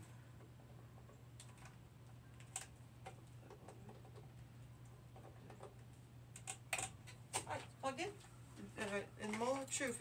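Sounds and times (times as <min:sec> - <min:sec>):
faint low hum: 0:00.0 - 0:10.0.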